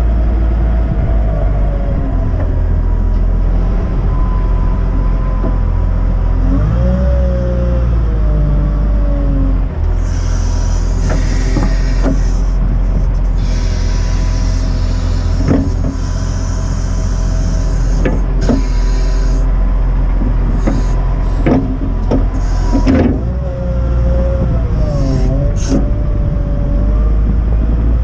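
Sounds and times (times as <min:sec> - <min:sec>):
diesel engine running: 0:00.0 - 0:28.0
hydraulics whining: 0:00.0 - 0:28.0
sharp clunks: 0:21.4 - 0:23.2.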